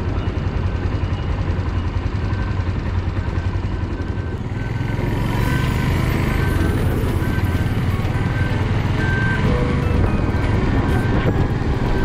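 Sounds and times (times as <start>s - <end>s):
motorcycle engine chugging: 0.0s - 12.0s.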